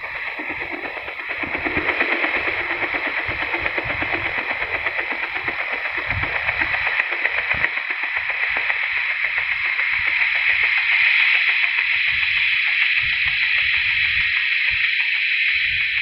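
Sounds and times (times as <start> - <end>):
synthesised helicopter sound: 0.0 - 16.0.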